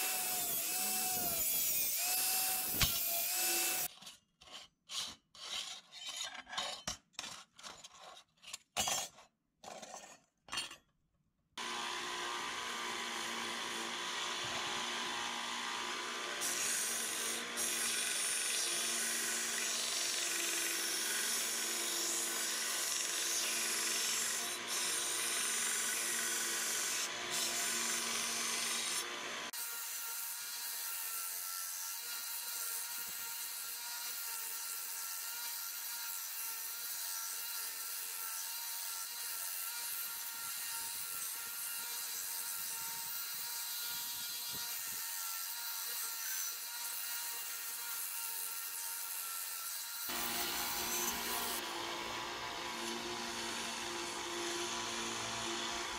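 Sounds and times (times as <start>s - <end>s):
metal grinding on sander belt: 0.0s - 3.9s, 49.2s - 55.9s
sander motor hum: 11.6s - 17.6s, 50.1s - 55.9s.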